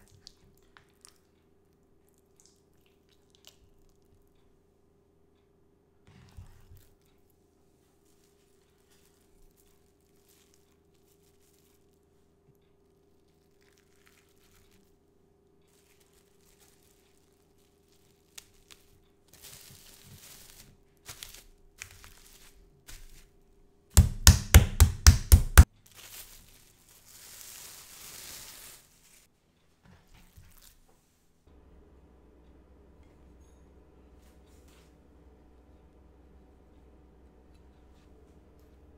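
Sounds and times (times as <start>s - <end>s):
cling film crinkling: 13.2s - 15.0s, 15.7s - 23.4s, 25.9s - 29.3s
chicken being pounded flat: 23.9s - 25.7s.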